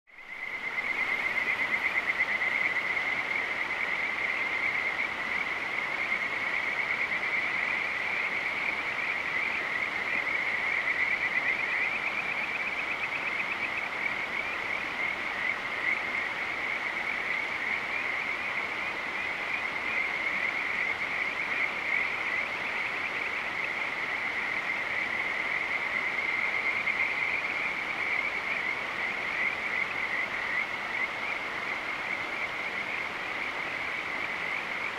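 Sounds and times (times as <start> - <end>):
trilling chorus of night animals: 0.2 - 34.9.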